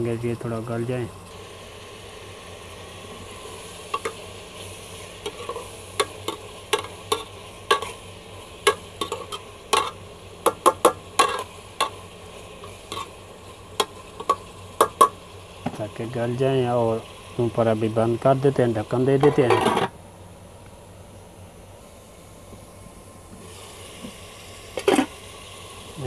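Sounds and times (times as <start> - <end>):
vegetables sizzling in oil: 0.0 - 26.0
metal spoon scraping a pot: 5.2 - 8.0, 8.6 - 10.0, 10.7 - 12.0, 12.7 - 13.1, 19.3 - 19.9
spoon knocking pot sides: 5.3 - 8.0, 8.7 - 12.0, 13.8 - 15.2.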